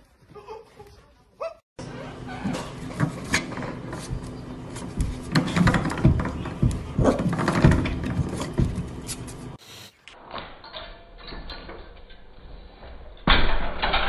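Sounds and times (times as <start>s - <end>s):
spring doorstop twanging: 2.4s - 9.1s
quick knocks and springy thumps: 3.0s - 9.3s.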